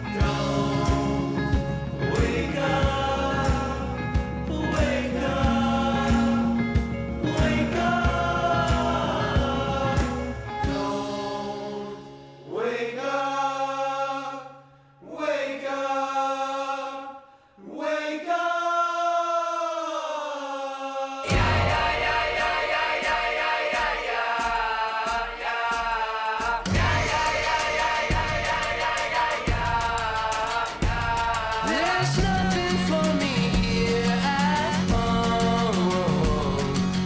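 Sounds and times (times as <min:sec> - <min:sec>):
indie pop band with drums: 0:00.0 - 0:12.0, 0:21.3 - 0:37.0
layered choir-like singing: 0:00.0 - 0:37.0.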